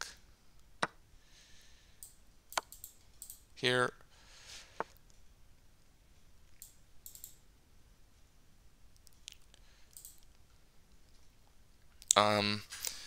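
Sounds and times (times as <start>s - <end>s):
computer mouse clicks: 2.0s - 3.4s, 6.5s - 7.4s, 9.0s - 10.4s.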